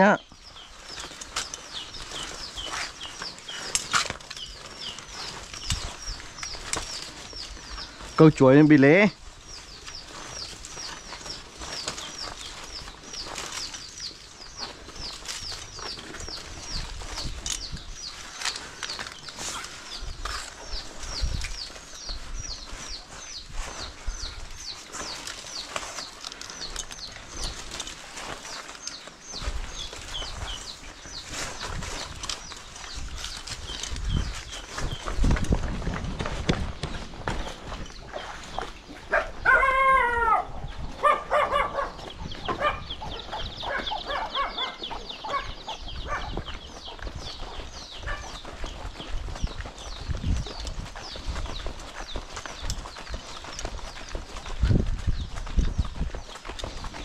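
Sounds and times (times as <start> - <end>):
bird chirping: 0.0 - 57.0
cable clicking and rustling on concrete: 0.4 - 8.7, 9.4 - 39.2
small bird calling: 37.7 - 57.0.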